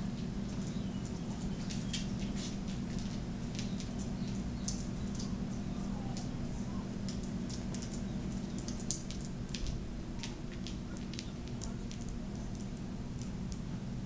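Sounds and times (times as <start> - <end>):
low room hum: 0.0 - 14.0
dog toenails clicking on hard floor: 0.4 - 6.3, 7.0 - 13.3.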